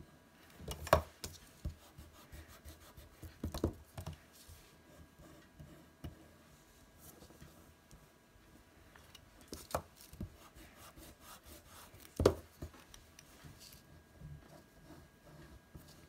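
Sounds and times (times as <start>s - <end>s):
pencil scratching on paper: 10.2s - 12.0s.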